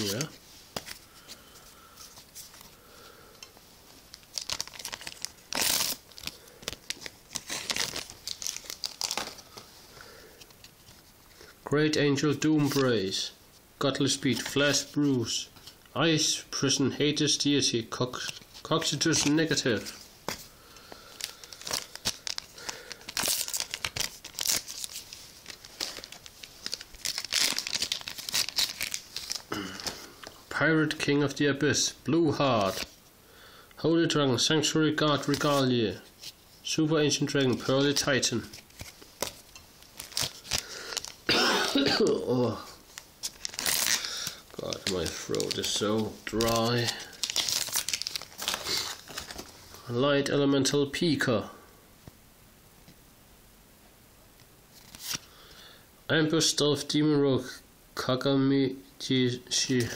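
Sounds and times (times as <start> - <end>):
wrapper being torn and crinkled: 4.1 - 9.6, 21.2 - 30.0, 37.6 - 42.1, 42.8 - 49.5.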